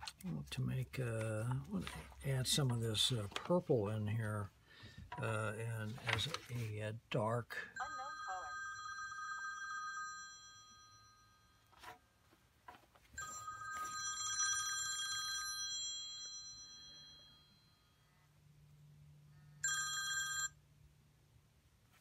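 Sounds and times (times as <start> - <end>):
bell-like ringing tones: 7.8 - 11.7, 13.2 - 18.0.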